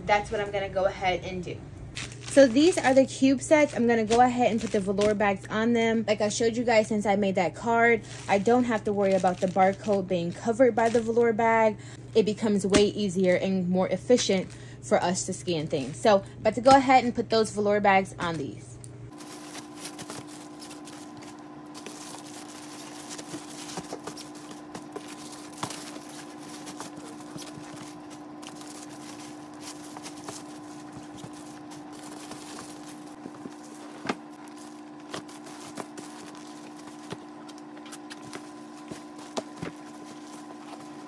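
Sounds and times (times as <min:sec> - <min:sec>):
steady hum: 0:00.0 - 0:41.0
plastic and fabric rustling: 0:01.9 - 0:05.2, 0:08.0 - 0:11.4, 0:19.1 - 0:41.0.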